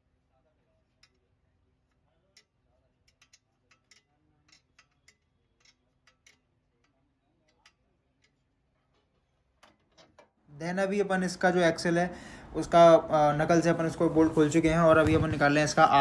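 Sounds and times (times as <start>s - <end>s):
spanner metallic clicks: 1.9s - 8.4s.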